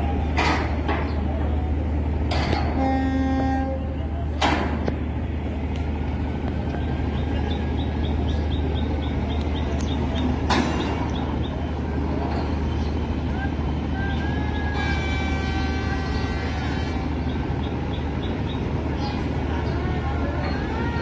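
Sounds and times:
boat horn blast: 2.6s - 4.0s, 14.2s - 17.2s.

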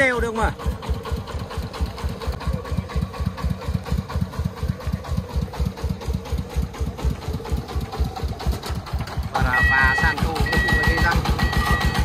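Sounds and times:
diesel engine chugging: 0.0s - 12.0s.

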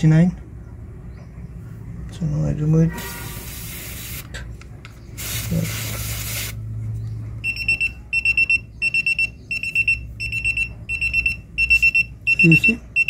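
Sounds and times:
air hissing from tyre valve: 3.0s - 4.3s, 5.2s - 6.6s
high repeating alert beep: 7.4s - 13.0s.

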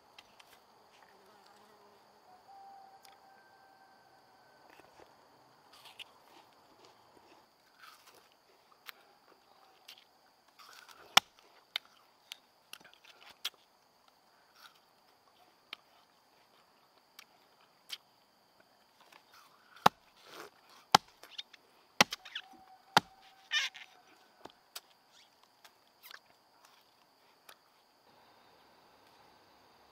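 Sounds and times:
sharp tool knocks and chops: 20.9s - 21.1s, 22.0s - 22.2s.

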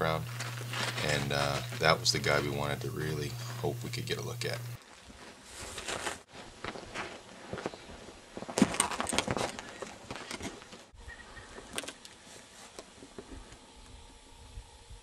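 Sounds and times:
footsteps crunching over rock: 0.0s - 3.8s, 4.8s - 11.0s
wind rumble on microphone: 13.3s - 15.0s.

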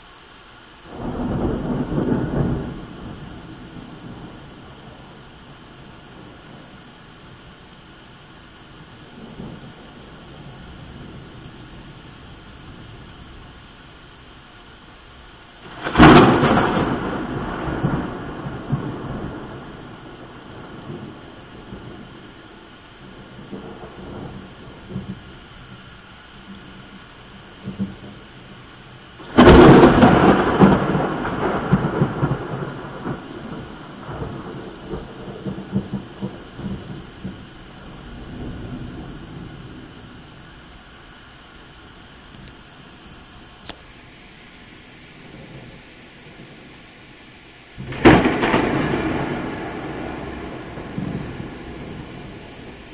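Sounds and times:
heavy rain: 0.0s - 52.9s
thunderclaps: 15.6s - 22.2s, 29.2s - 39.9s, 47.8s - 52.9s.

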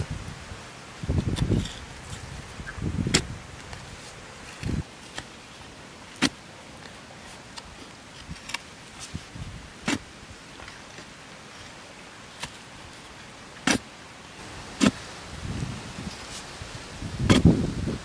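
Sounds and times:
digging tool thudding into soil: 17.2s - 17.6s.

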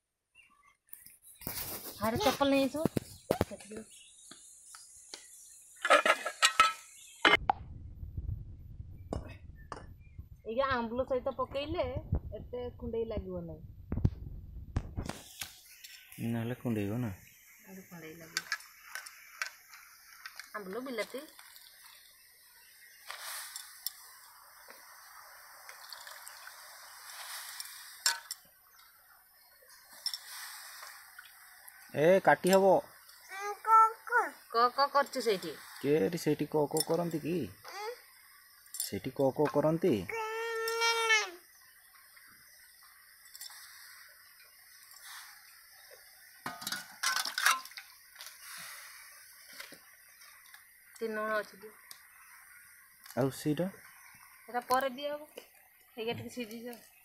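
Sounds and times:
water simmering in a pan: 18.6s - 30.3s
steel pot and ladle clinking: 28.0s - 28.4s, 38.7s - 39.0s, 46.5s - 47.8s.

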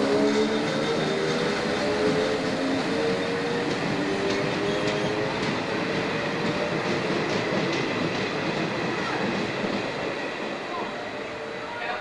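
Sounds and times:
train running rumble: 0.0s - 12.0s.

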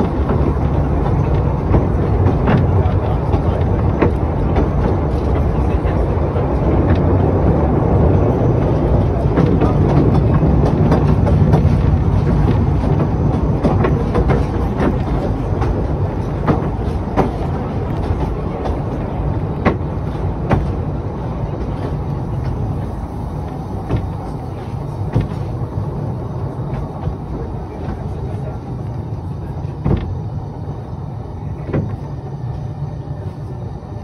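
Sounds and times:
wheels clicking over rail joints: 0.0s - 33.2s
train rumbling: 0.0s - 34.0s.

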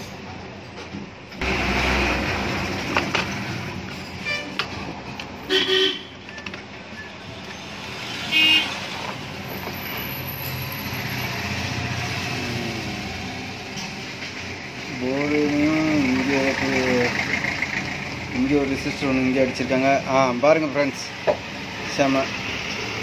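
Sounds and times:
vehicles passing: 0.0s - 23.0s
car horn toots: 5.5s - 6.2s, 8.3s - 8.8s.

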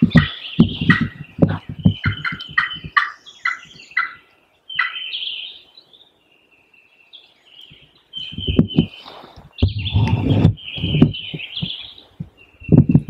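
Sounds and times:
wild turkey calling: 0.0s - 5.7s.

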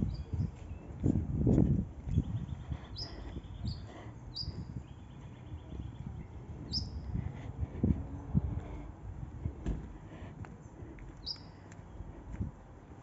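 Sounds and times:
small birds chirping: 0.0s - 1.2s, 1.9s - 8.4s, 10.5s - 12.3s
low rumbling thumps: 5.5s - 11.2s.

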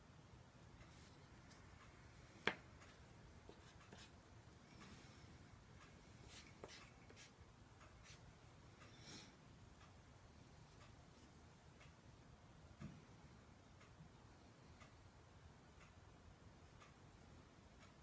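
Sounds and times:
painting tool tapping and clicking: 2.4s - 4.1s
hands working on paper: 2.4s - 4.2s, 6.2s - 8.2s.

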